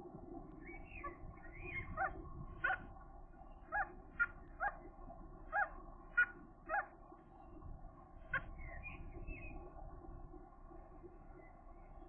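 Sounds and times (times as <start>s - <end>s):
gulls calling: 5.5s - 7.0s.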